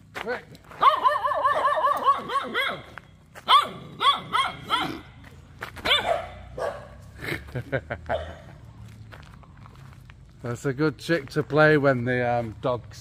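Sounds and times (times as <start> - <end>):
dogs barking: 0.8 - 5.2, 5.8 - 7.1, 8.0 - 8.5.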